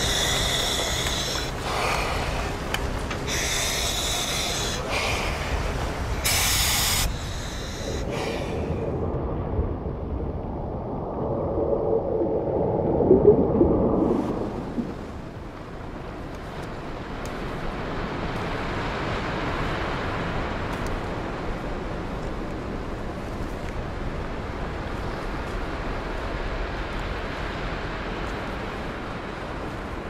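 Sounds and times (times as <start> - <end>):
diver breathing through regulator: 0.0 - 2.6, 3.2 - 8.9
muffled underwater rumble: 0.0 - 16.2.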